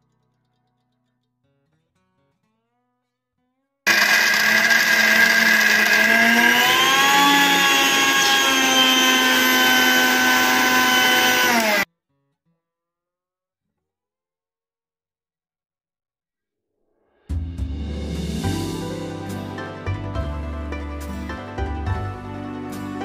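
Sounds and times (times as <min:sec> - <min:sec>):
mixer grinder motor whine: 0:03.9 - 0:11.9.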